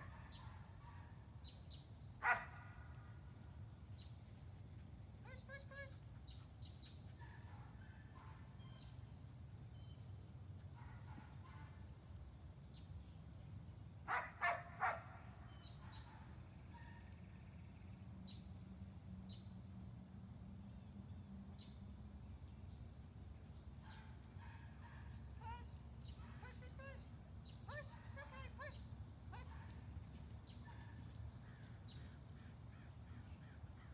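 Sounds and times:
faint ticks: 29.7s - 32.0s.

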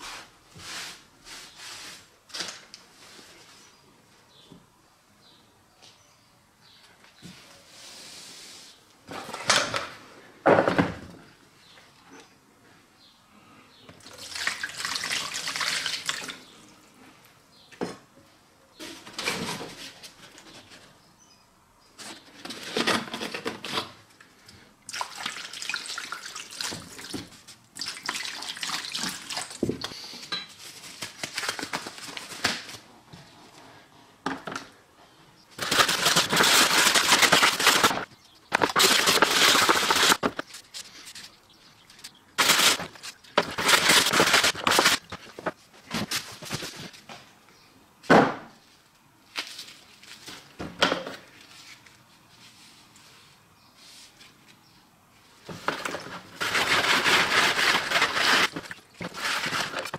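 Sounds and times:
liquid sloshing and splashing: 24.9s - 29.6s.

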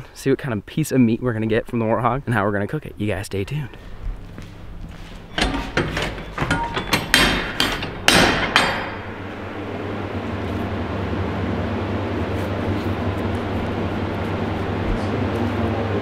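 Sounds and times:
steady low hum: 0.0s - 16.0s
heavy door metallic knocks and clanks: 5.3s - 9.3s.

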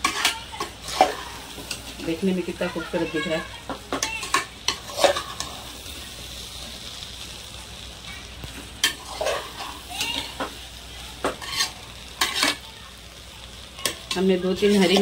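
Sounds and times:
food sizzling in hot oil: 0.0s - 15.0s
spoon scraping pot: 4.0s - 5.6s, 8.8s - 10.5s, 11.2s - 12.6s.

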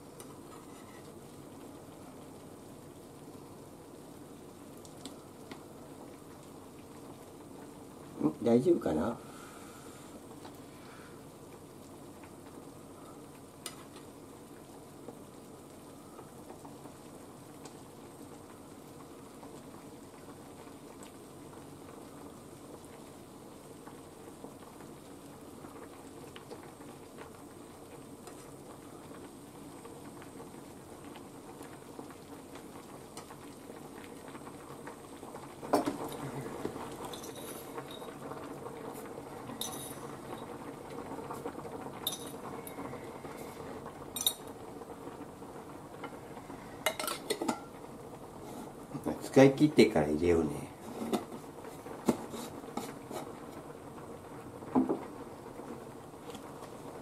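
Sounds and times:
soup bubbling in saucepan: 0.0s - 57.0s
spoon clinking on glass jar: 39.6s - 40.0s.

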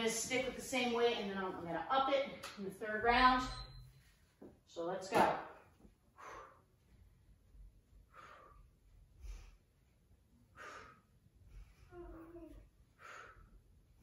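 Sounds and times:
woman breathing hard: 6.1s - 6.9s, 8.0s - 9.8s, 10.4s - 14.0s.

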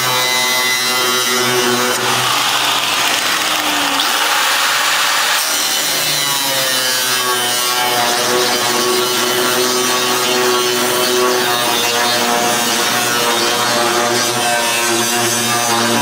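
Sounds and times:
angle grinder cutting steel: 0.0s - 16.0s.

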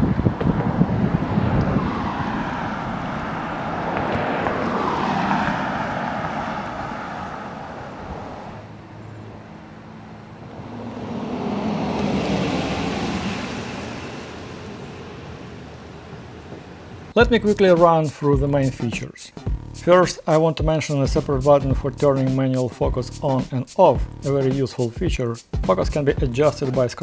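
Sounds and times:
pickup truck driving by: 0.0s - 17.2s
vehicles passing: 0.0s - 22.5s.

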